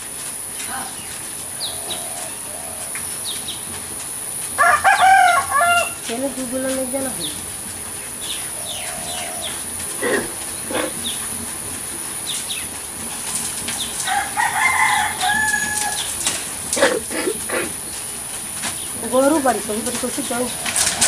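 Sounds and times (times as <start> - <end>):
hens clucking: 0.1 - 21.0
small birds chirping: 0.5 - 21.0
rooster crowing: 1.5 - 3.0, 4.5 - 6.1, 8.5 - 11.0, 14.0 - 17.6.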